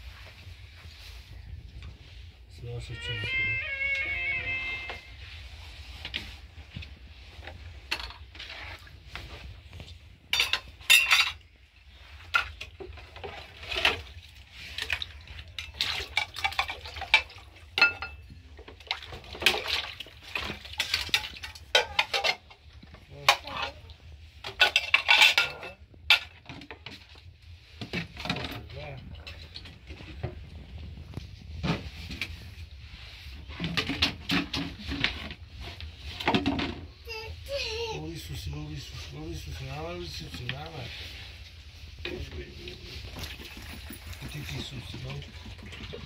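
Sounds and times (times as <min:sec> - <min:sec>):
dishes clinking and knocking: 0:10.3 - 0:11.4, 0:15.6 - 0:18.3, 0:20.8 - 0:22.5, 0:24.5 - 0:26.8.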